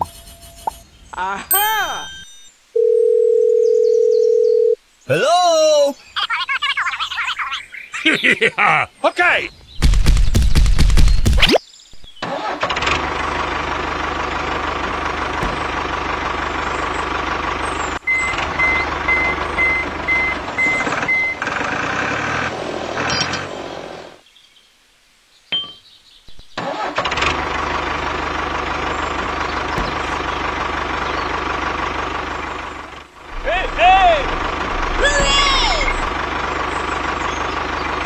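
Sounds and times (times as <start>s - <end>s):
tractor engine running: 12.3s - 23.7s, 26.6s - 38.0s
reversing alarm beeps: 18.1s - 21.4s.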